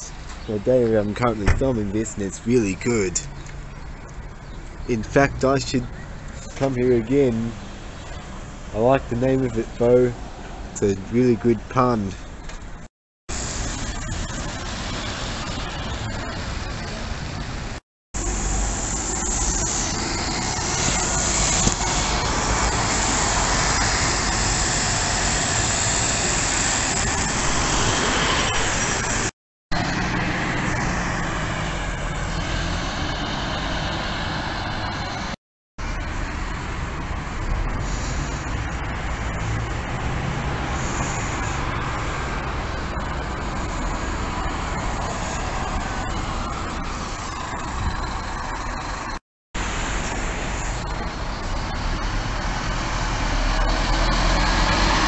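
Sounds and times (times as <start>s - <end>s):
motor vehicles passing: 14.0s - 55.0s.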